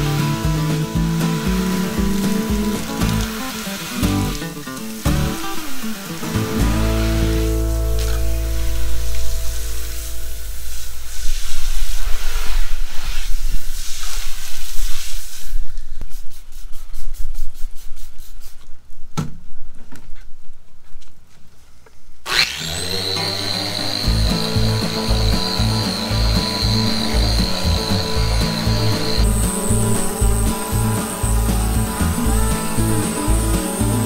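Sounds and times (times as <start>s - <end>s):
orbital sander whining: 0.0s - 11.6s, 22.3s - 34.0s
hose spraying water: 0.0s - 18.6s, 22.3s - 34.0s.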